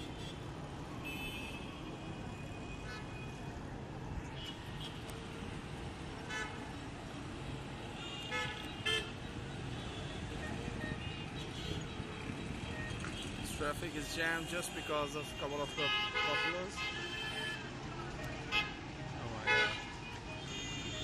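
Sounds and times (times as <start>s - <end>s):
street traffic hum: 0.0s - 21.0s
vehicle horns tooting: 10.8s - 17.7s, 19.4s - 21.0s.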